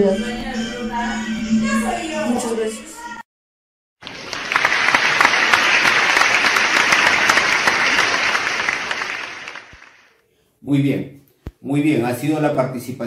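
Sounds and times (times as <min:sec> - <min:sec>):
crowd applause: 0:04.0 - 0:10.1.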